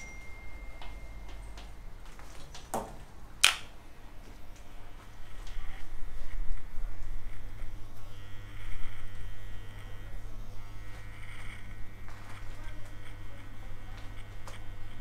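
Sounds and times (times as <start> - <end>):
electric hair trimmer buzzing: 4.8 - 15.0.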